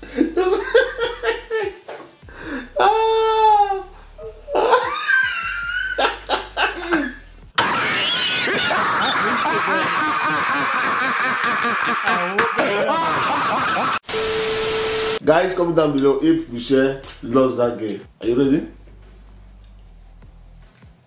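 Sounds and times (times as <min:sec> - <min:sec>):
hearty laughter: 0:00.0 - 0:01.8, 0:04.5 - 0:14.0
music with laughing: 0:00.0 - 0:14.0.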